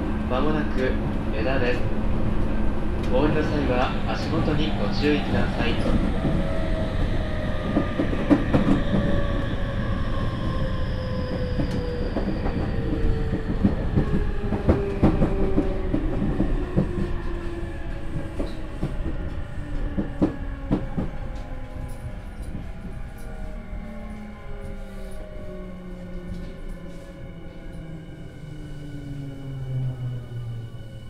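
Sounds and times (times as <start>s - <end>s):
train running rumble: 0.0s - 10.6s.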